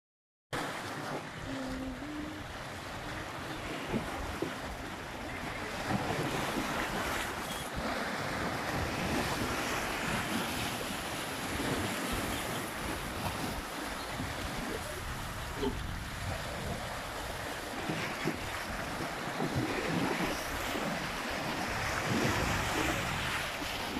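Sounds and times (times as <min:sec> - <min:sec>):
sea waves on rocky shore: 0:00.6 - 0:23.9
wind buffeting microphone: 0:01.2 - 0:23.9.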